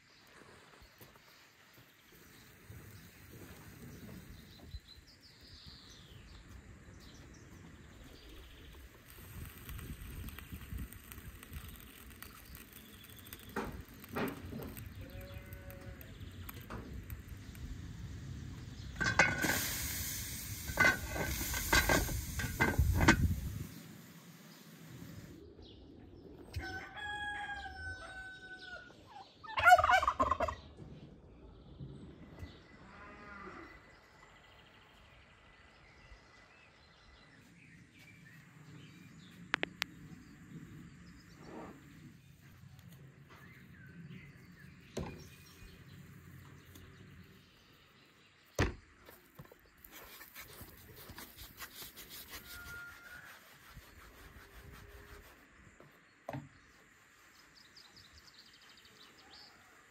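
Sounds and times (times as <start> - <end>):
turkey gobbling: 29.5 - 30.6.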